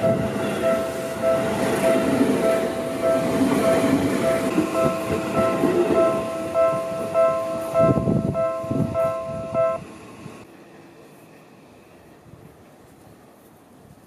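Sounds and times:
level-crossing warning bell: 0:00.0 - 0:10.1
train passing: 0:00.0 - 0:13.9.

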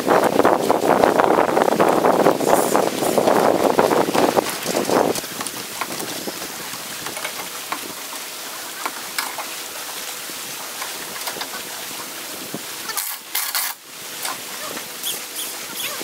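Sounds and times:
choppy lake water: 0:00.0 - 0:16.0
wind hiss: 0:00.0 - 0:16.0.

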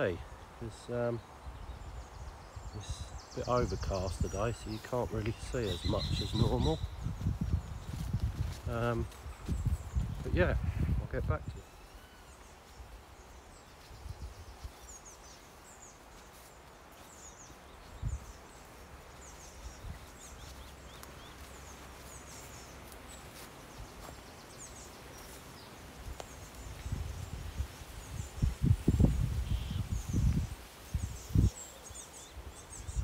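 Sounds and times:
small birds chirping: 0:00.0 - 0:33.0
wind rumble on microphone: 0:01.4 - 0:11.6, 0:13.8 - 0:15.0, 0:17.8 - 0:18.5, 0:19.5 - 0:20.7, 0:26.0 - 0:33.0.

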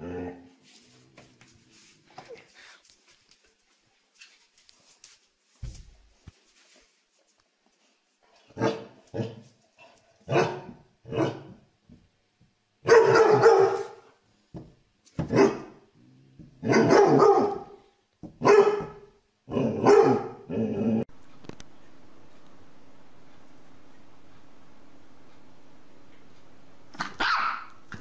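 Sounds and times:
dog barking: 0:08.6 - 0:09.4, 0:10.3 - 0:11.5, 0:12.8 - 0:14.1, 0:15.3 - 0:15.8, 0:16.6 - 0:17.8, 0:18.4 - 0:20.5, 0:27.0 - 0:27.8.

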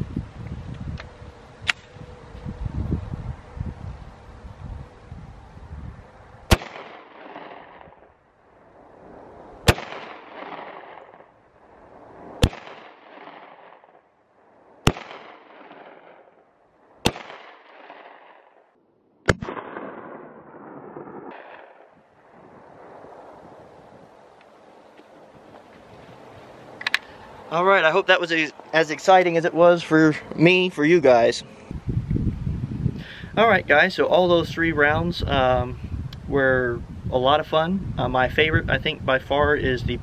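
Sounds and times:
pistol shots with echo: 0:06.5 - 0:08.0, 0:09.6 - 0:11.3, 0:12.4 - 0:13.9, 0:14.8 - 0:16.3, 0:17.0 - 0:18.6, 0:19.3 - 0:22.0.

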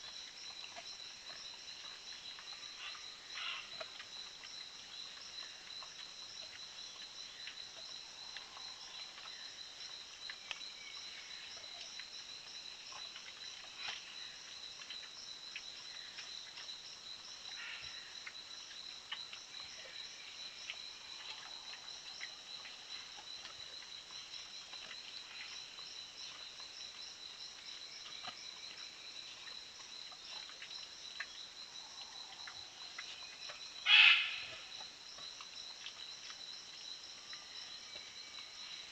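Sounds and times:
faint ticks: 0:00.0 - 0:38.9
insect chorus chirring: 0:00.0 - 0:38.9.

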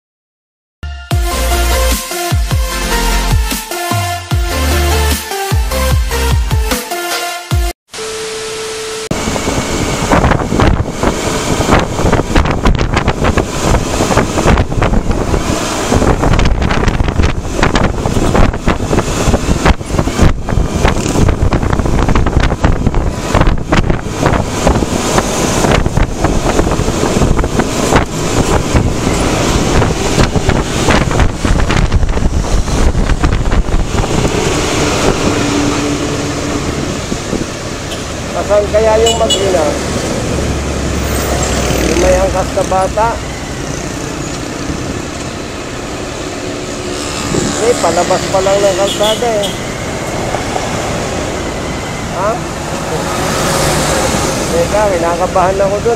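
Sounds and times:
steady tone: 0:07.9 - 0:12.0, 0:25.6 - 0:55.9
road and traffic noise: 0:07.9 - 0:55.9
wind buffeting microphone: 0:09.1 - 0:38.3, 0:43.2 - 0:48.4.

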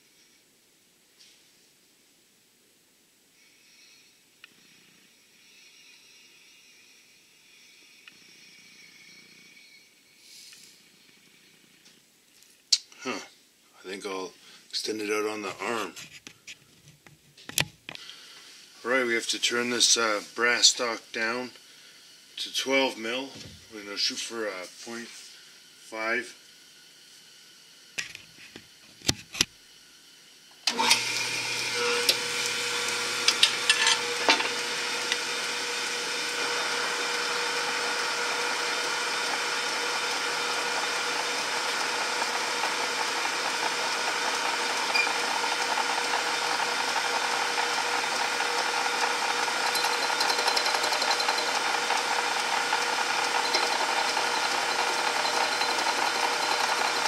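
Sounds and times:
metal lathe running: 0:30.7 - 0:57.0.

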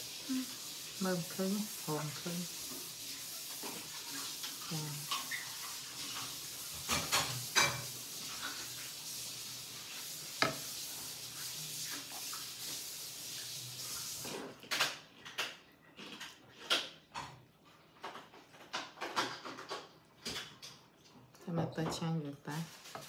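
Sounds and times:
metal spoon scraping a pan: 0:22.6 - 0:23.0.

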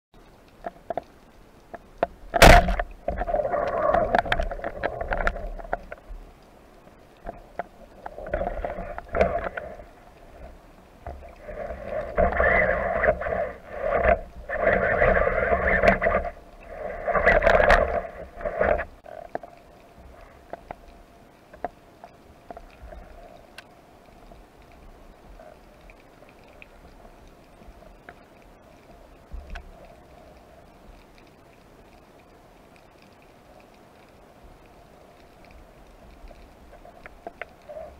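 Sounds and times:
underwater rushing noise: 0:00.2 - 0:37.9
speargun firing underwater: 0:02.4 - 0:02.8.

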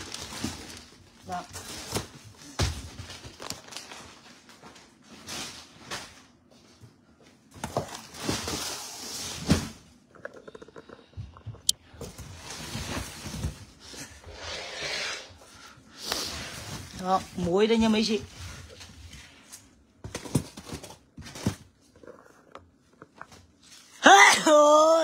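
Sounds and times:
plastic bags rustling: 0:00.0 - 0:06.7, 0:07.4 - 0:09.8.

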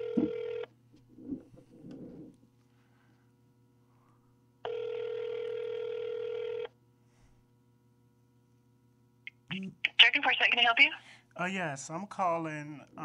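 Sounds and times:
telephone ringback tone: 0:00.0 - 0:00.7, 0:04.6 - 0:06.7.

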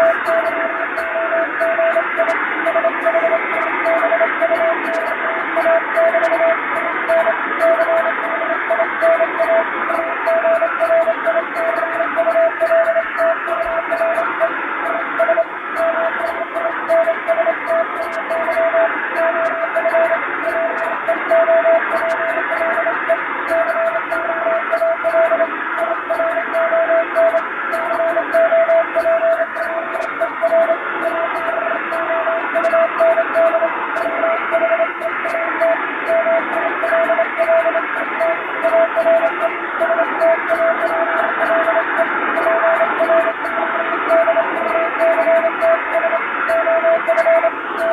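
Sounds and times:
morse code tone: 0:00.0 - 0:47.9
radio hiss: 0:12.8 - 0:47.9.

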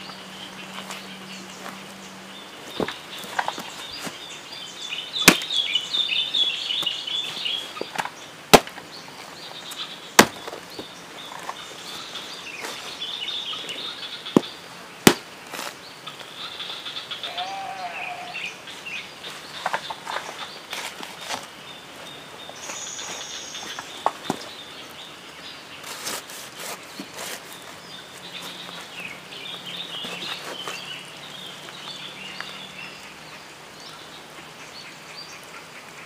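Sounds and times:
birds chirping: 0:00.0 - 0:36.0
machete chopping fruit: 0:05.2 - 0:05.6, 0:08.5 - 0:08.8, 0:10.2 - 0:10.6, 0:14.4 - 0:15.8.

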